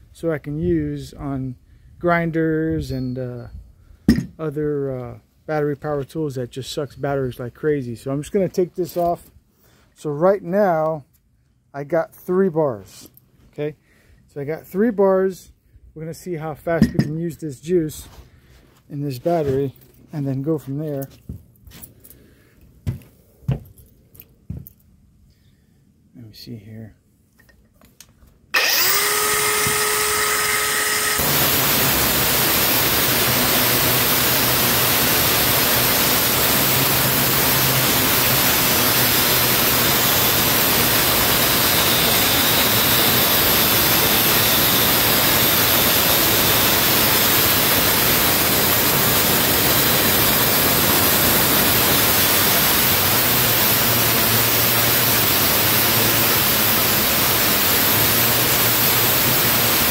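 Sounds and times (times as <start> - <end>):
angle grinder whining: 28.5 - 59.9
grinder grinding metal: 28.6 - 59.9.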